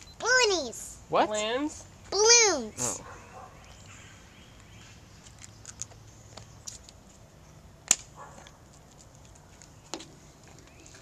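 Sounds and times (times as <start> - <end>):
sharp plastic snap: 7.9 - 8.1.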